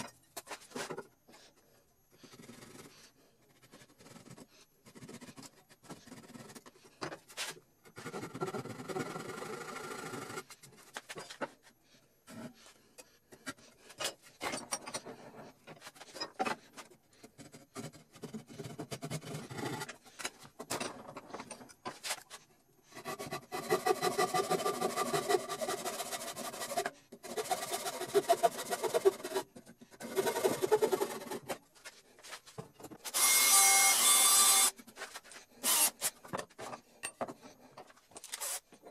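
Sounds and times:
hand saw cutting wood: 22.9s - 31.6s, 33.0s - 36.2s
drill boring into wood: 33.1s - 34.8s, 35.6s - 36.2s, 38.3s - 38.6s.

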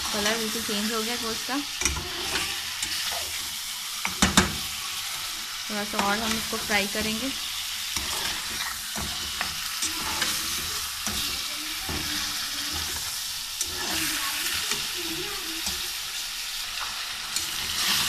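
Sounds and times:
meat sizzling in hot oil: 0.0s - 18.0s
metal spoon scraping a pot: 1.8s - 3.4s, 7.9s - 11.2s.

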